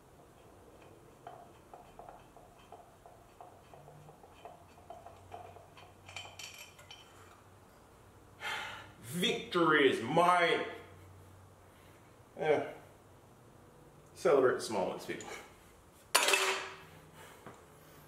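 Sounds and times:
metal clinks: 4.9s - 7.4s.

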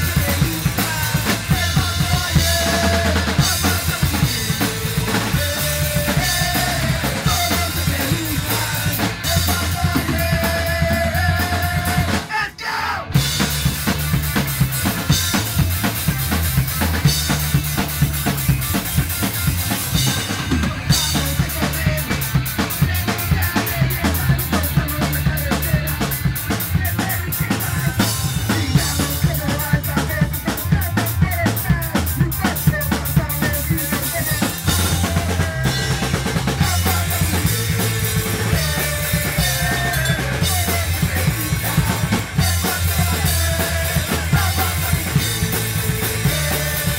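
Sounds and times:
electric guitars: 0.0s - 12.4s, 13.0s - 46.9s
person singing: 0.0s - 13.4s, 20.5s - 46.9s
drum kit: 0.0s - 46.9s.

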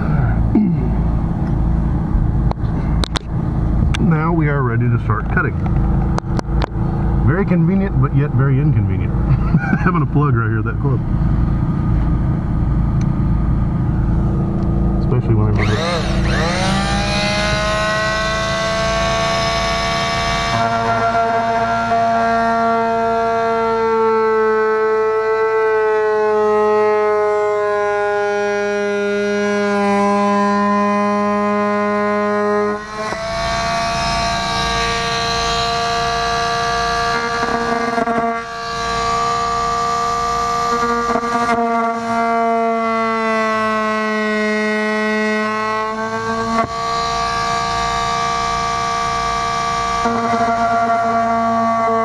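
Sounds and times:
oscillating multi-tool whine: 15.5s - 22.9s, 28.6s - 42.8s, 43.8s - 52.0s.

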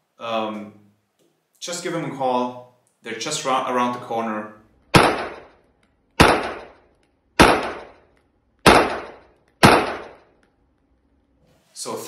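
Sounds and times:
pistol shots echoing indoors: 4.8s - 10.5s.

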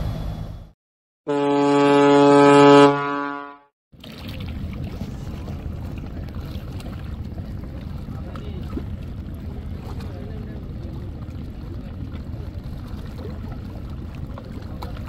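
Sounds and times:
boat horn blast: 1.3s - 3.7s.

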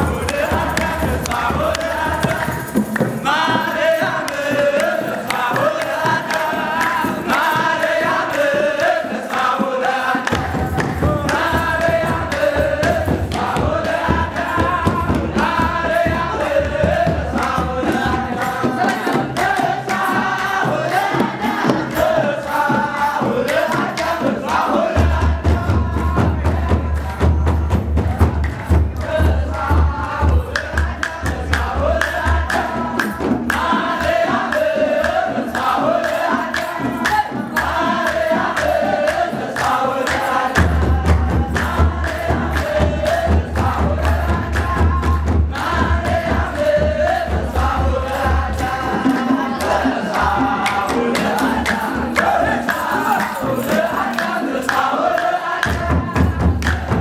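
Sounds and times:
drums beating steady rhythm: 0.0s - 57.0s
male choir chanting: 0.0s - 57.0s.

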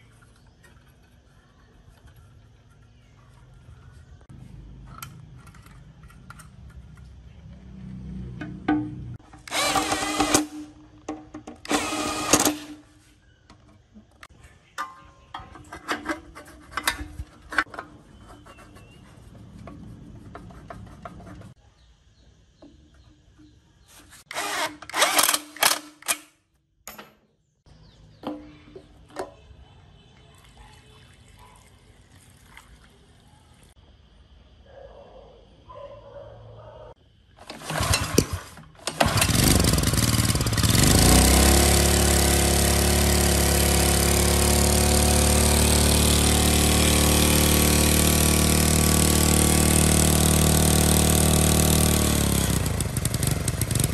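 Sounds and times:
cordless drill whirring: 9.4s - 10.7s, 11.6s - 12.8s, 24.3s - 25.8s.

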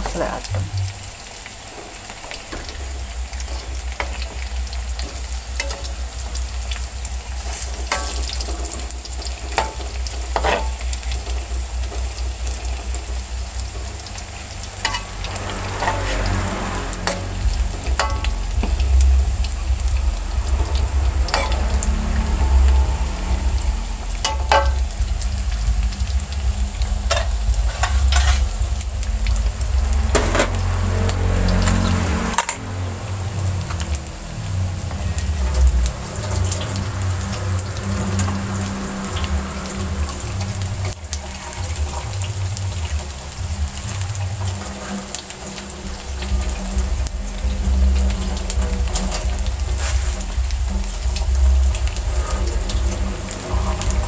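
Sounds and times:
food deep-frying in oil: 0.0s - 54.0s
low rumble: 0.0s - 54.0s
metal spatula scraping a wok: 7.4s - 11.0s, 14.8s - 18.9s, 20.8s - 24.9s, 27.0s - 28.6s, 48.8s - 50.3s.

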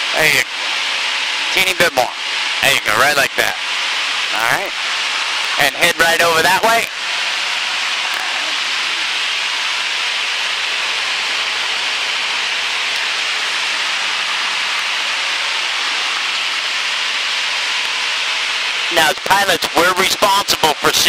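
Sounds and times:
light airplane cabin noise: 8.0s - 9.2s.

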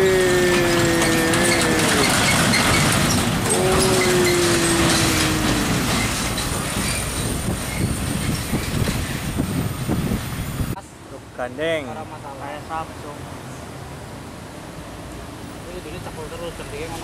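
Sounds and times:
truck diesel engine passing: 0.0s - 9.8s
long tones sliding down: 3.5s - 6.3s.

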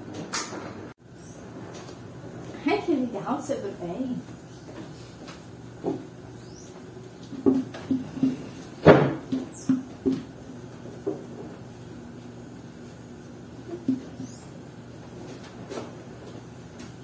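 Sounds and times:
household items knocking and clunking: 7.2s - 10.4s.

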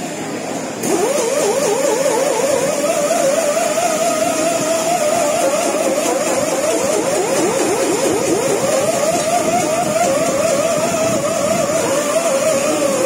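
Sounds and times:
wavering mechanical whine: 0.0s - 13.0s.

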